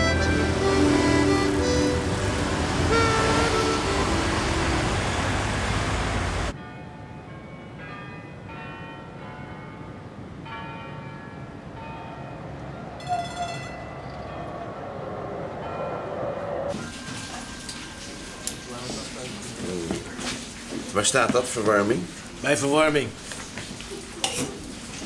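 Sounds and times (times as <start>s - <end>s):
church bells ringing: 0.0s - 5.6s, 6.4s - 19.6s
car and street noise: 0.0s - 6.6s, 10.8s - 22.4s.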